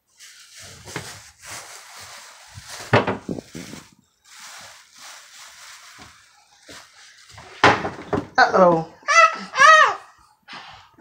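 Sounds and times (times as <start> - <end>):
plastic bags crinkling: 0.1 - 8.0.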